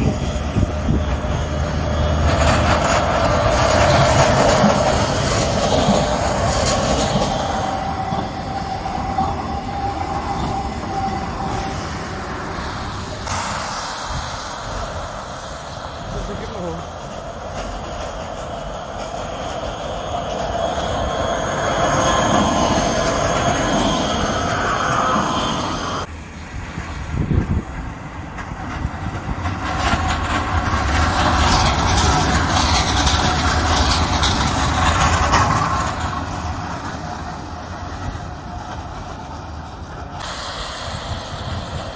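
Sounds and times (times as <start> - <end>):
high wheel squeal: 0.0 - 13.9, 19.2 - 26.1
trams rolling rumble: 0.0 - 41.9
steady high tone: 7.1 - 16.6.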